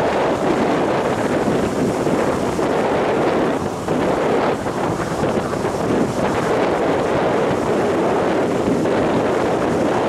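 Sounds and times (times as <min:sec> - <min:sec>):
surf breaking on beach: 0:00.0 - 0:10.0
wind buffeting microphone: 0:00.0 - 0:10.0.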